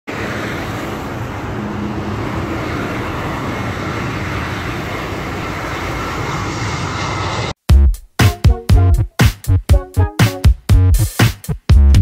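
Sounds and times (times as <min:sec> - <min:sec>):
faint jet engine whine: 0:00.1 - 0:07.6
jet airliner engine rumble: 0:00.1 - 0:07.6.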